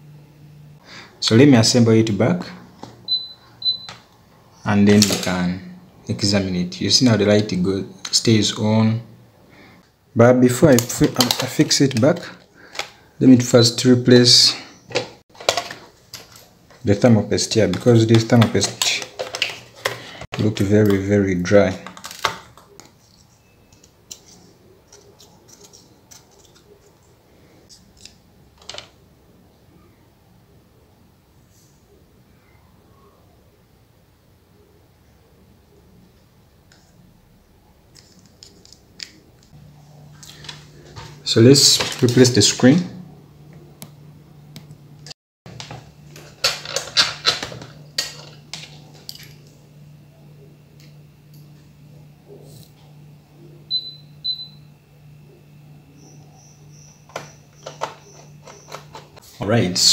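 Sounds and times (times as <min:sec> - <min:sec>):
steady low hum: 0:33.4 - 0:59.9.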